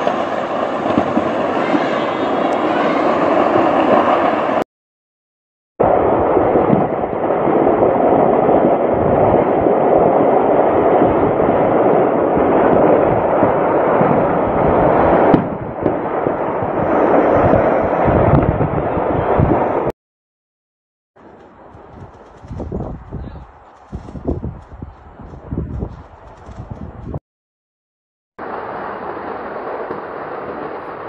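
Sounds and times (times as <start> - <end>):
crackle of rapid small detonations: 0.0 - 4.6, 5.8 - 19.6.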